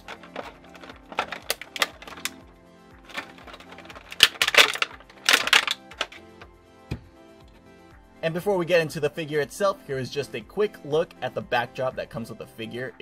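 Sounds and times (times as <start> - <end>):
plastic packaging crinkling: 0.0 - 2.4, 3.0 - 6.4
background music: 0.0 - 13.0.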